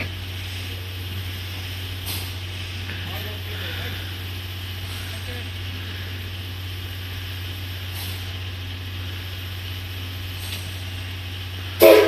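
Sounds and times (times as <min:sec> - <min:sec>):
steam hiss: 0:00.0 - 0:12.0
steam locomotive low hum: 0:00.0 - 0:12.0.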